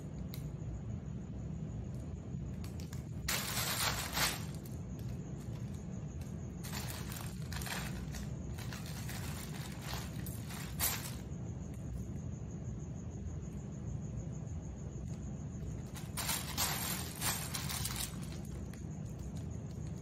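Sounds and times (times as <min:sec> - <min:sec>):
steady low hum: 0:00.0 - 0:20.0
rustling plush toys on mat: 0:03.3 - 0:04.8, 0:06.6 - 0:11.3, 0:15.8 - 0:18.5.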